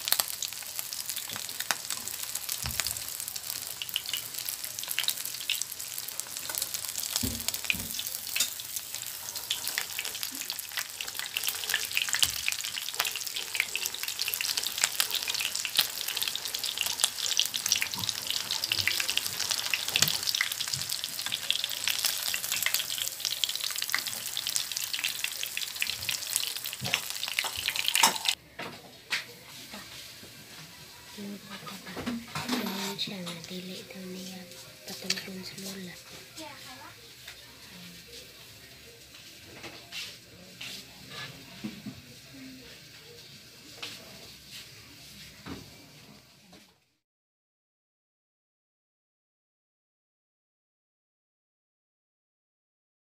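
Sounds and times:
fish frying in hot oil: 0.0s - 28.4s.

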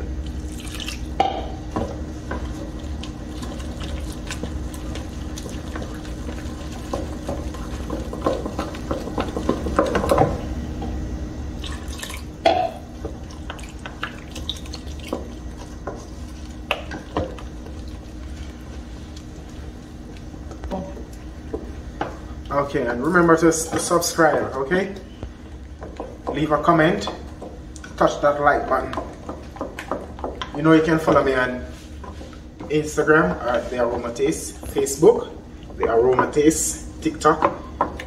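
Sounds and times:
steady low hum: 0.0s - 38.0s
batter squelching: 0.2s - 10.5s.

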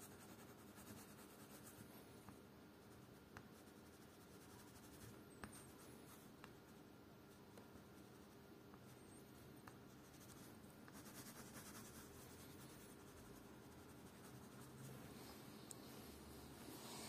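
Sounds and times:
pencil scratching on paper: 0.0s - 1.9s, 8.9s - 15.0s.

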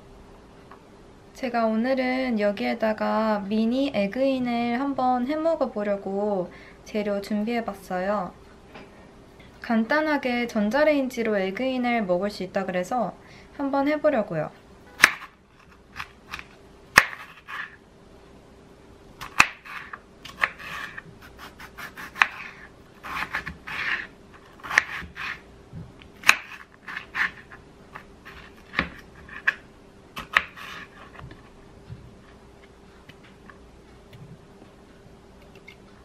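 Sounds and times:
knife rasping through tomato: 19.6s - 25.4s, 26.2s - 29.6s, 30.2s - 31.2s.

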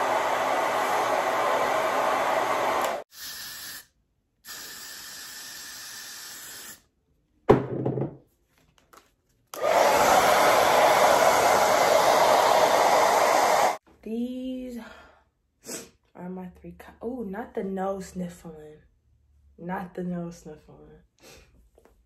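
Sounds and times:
hair dryer blowing air: 0.0s - 3.1s, 9.6s - 13.8s.

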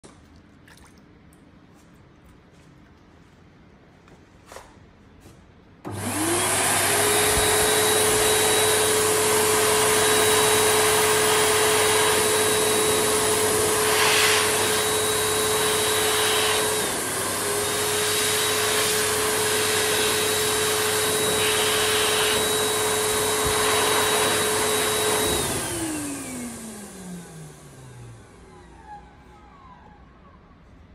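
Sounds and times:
hand dryer air rush: 5.8s - 29.0s
hand dryer motor whine: 5.8s - 30.0s.

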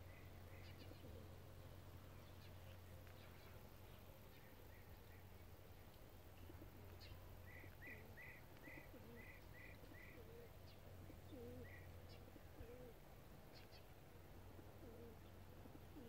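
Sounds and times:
small bird chirping: 0.0s - 1.3s
dove cooing: 0.0s - 1.6s, 6.4s - 13.1s, 14.5s - 16.0s.

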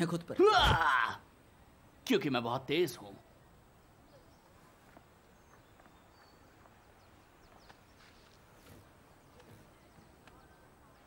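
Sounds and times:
soft high bird chirps: 3.1s - 11.0s.

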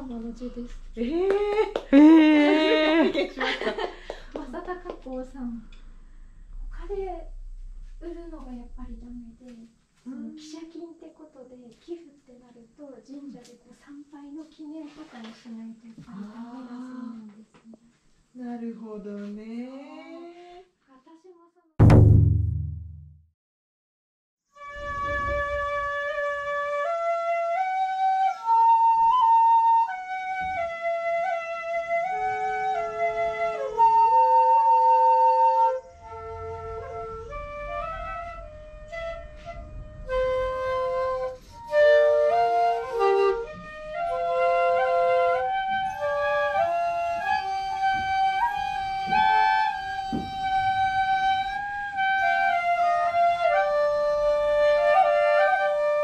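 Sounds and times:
transverse bamboo flute melody: 24.5s - 56.0s
end-blown bamboo flute: 24.6s - 56.0s.

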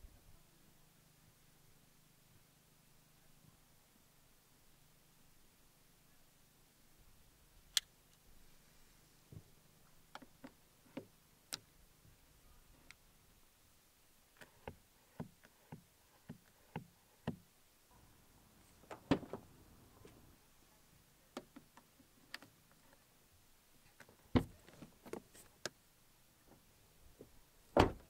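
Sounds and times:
car door clunks: 18.9s - 19.4s, 27.8s - 28.0s.

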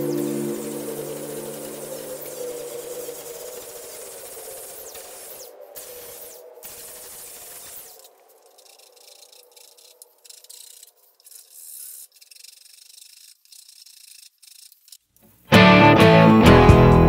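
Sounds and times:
faint hum: 0.0s - 11.2s
sandpaper scratching wood: 0.0s - 15.1s
guitar music: 15.5s - 17.0s.

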